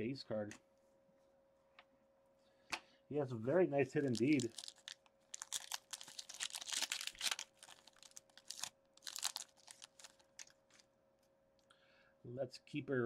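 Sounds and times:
faint steady hum: 0:00.0 - 0:13.0
wrapper and cards crinkling: 0:04.0 - 0:10.9.

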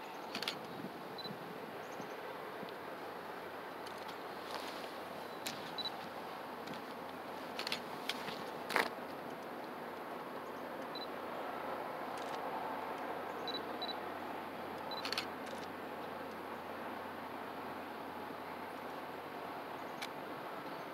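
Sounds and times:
steady background hiss: 0:00.0 - 0:20.9
camera shutter clicks: 0:00.3 - 0:00.6, 0:07.5 - 0:07.8, 0:14.9 - 0:15.7.

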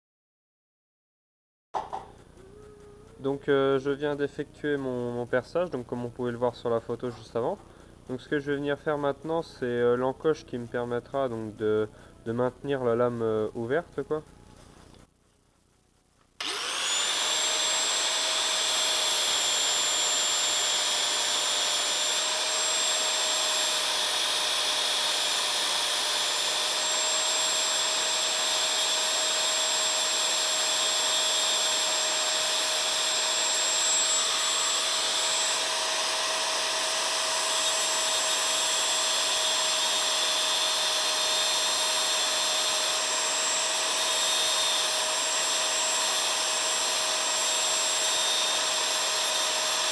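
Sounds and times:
angle grinder cutting steel: 0:16.4 - 0:49.9.

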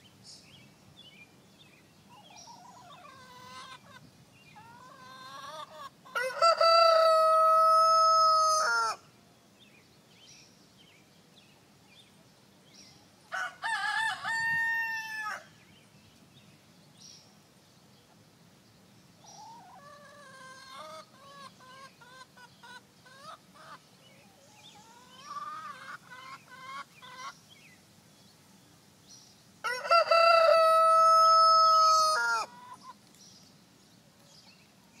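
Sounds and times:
chicken clucking: 0:02.2 - 0:08.8, 0:19.3 - 0:27.4, 0:29.8 - 0:33.2
rooster crowing: 0:06.1 - 0:09.0, 0:13.3 - 0:15.5, 0:29.6 - 0:32.5.

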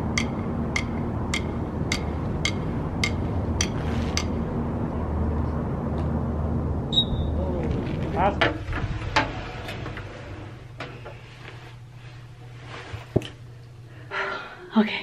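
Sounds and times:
electronic metronome ticking: 0:00.0 - 0:04.4
low background rumble: 0:00.0 - 0:15.0.

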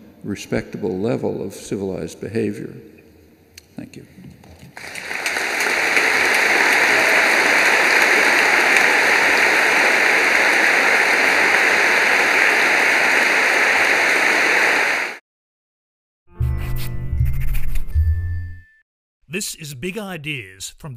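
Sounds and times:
large audience applauding: 0:04.8 - 0:15.2.

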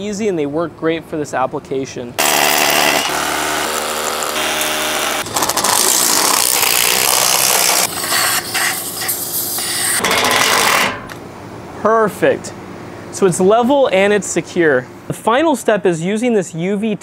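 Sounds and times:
drill motor whine: 0:02.2 - 0:08.4
drill grinding into concrete: 0:02.2 - 0:09.1.

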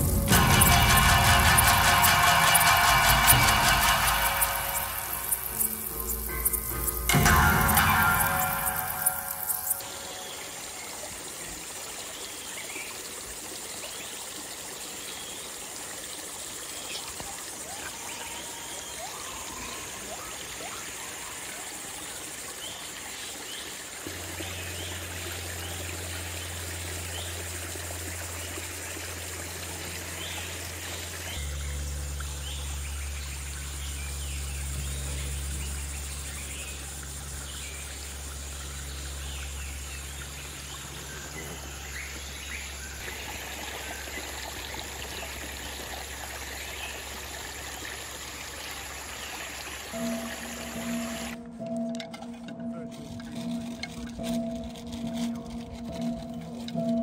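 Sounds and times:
low droning tone: 0:00.0 - 0:10.7, 0:24.1 - 0:44.0, 0:49.9 - 0:57.0
stream running over rocks: 0:00.0 - 0:57.0.

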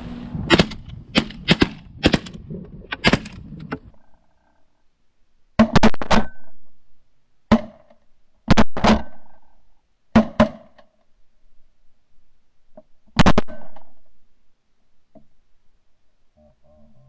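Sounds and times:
shotgun firing: 0:00.5 - 0:02.4, 0:03.0 - 0:03.5.

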